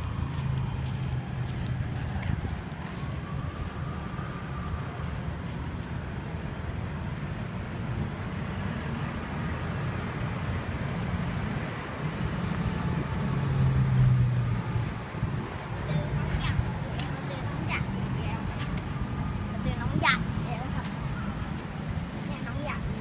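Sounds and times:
road traffic rumble: 0:00.0 - 0:23.0
vehicle engine: 0:08.2 - 0:23.0.

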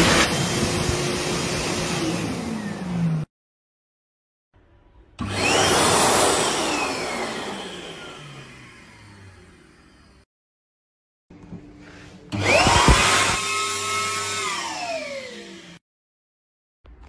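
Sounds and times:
hand dryer blowing air: 0:00.0 - 0:03.3, 0:05.2 - 0:09.8, 0:12.3 - 0:15.8.

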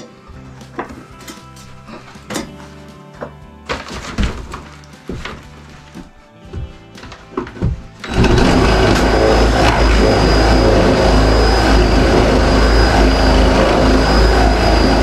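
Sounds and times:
electric power tool whining: 0:06.5 - 0:15.0.

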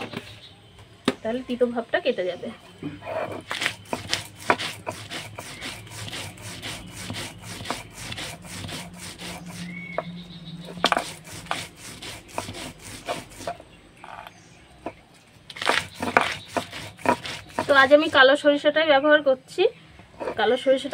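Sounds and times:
stone roller grinding on stone slab: 0:03.0 - 0:18.4, 0:20.1 - 0:20.9.

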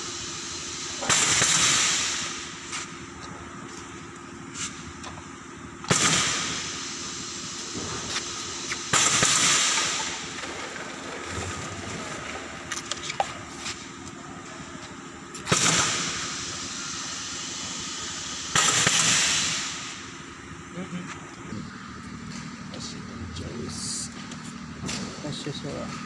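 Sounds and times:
steady machine hum: 0:00.0 - 0:26.0
compressed air hisses: 0:06.0 - 0:10.4, 0:15.5 - 0:20.2.

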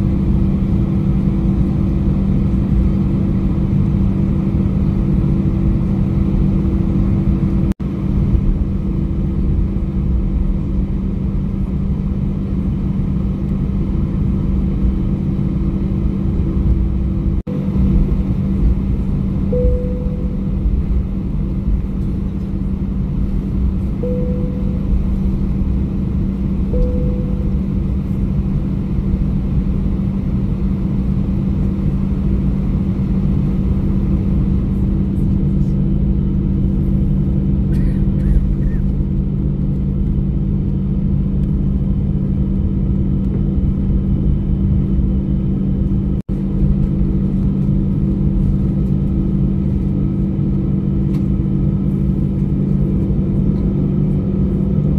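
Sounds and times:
deep hum: 0:00.0 - 0:54.9
jet engines at high power: 0:00.0 - 0:54.9.

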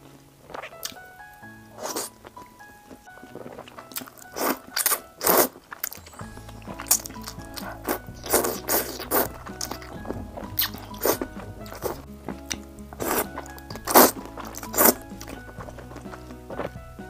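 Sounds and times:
soft background music: 0:00.0 - 0:17.0
person slurping noodles: 0:01.8 - 0:02.2, 0:03.3 - 0:06.0, 0:06.8 - 0:10.0, 0:10.6 - 0:16.2.

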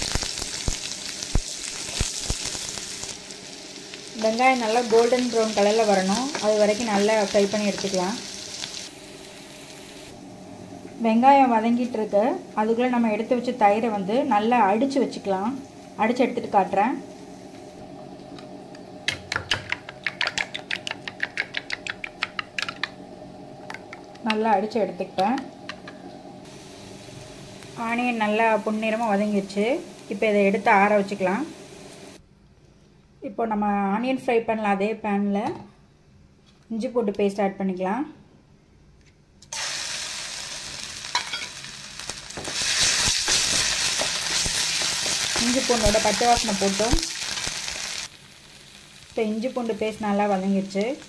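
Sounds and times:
paste sizzling in hot oil: 0:00.0 - 0:10.2, 0:26.4 - 0:32.2, 0:39.5 - 0:51.0.

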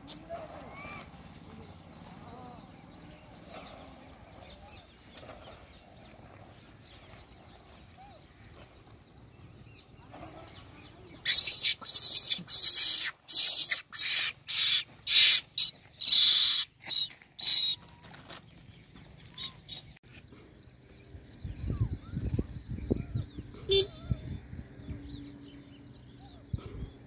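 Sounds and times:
monkeys screeching: 0:11.2 - 0:17.8.

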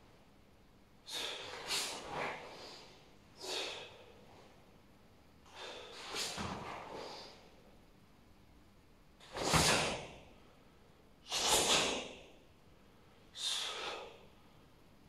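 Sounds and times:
sharp hissing exhalations: 0:01.1 - 0:04.1, 0:05.5 - 0:07.5, 0:11.3 - 0:12.2, 0:13.4 - 0:14.2.

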